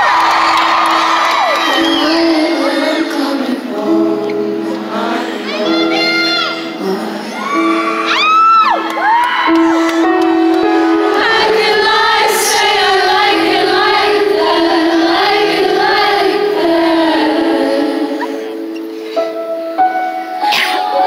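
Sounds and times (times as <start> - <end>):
audience singing along: 0.0 - 8.4, 10.0 - 21.0
person singing: 1.0 - 8.8, 9.5 - 19.4.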